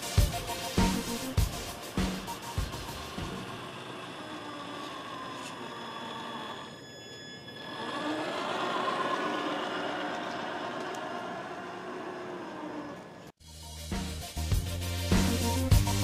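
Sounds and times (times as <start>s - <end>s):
toy truck motor whining: 2.4s - 13.4s.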